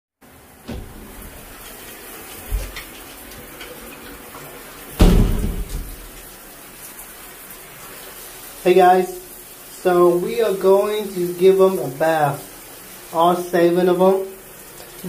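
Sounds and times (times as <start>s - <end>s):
shower water running: 0.2s - 15.0s
low thump: 0.7s - 1.4s, 5.0s - 6.1s
knock-like clatter: 5.0s - 6.1s.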